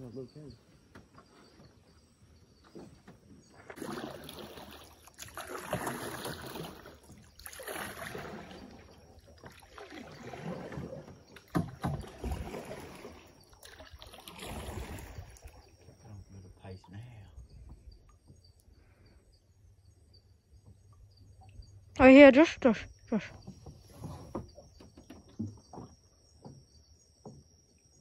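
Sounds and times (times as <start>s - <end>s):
paddle strokes swishing through water: 0.6s - 16.0s, 23.3s - 26.0s.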